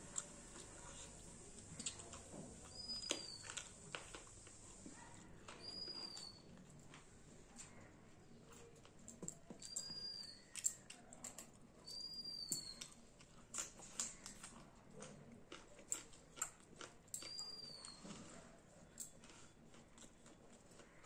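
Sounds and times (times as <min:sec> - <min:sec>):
chewing and crunching: 0:00.0 - 0:21.0
bird whistling: 0:05.6 - 0:06.5, 0:09.7 - 0:10.5, 0:11.9 - 0:12.9.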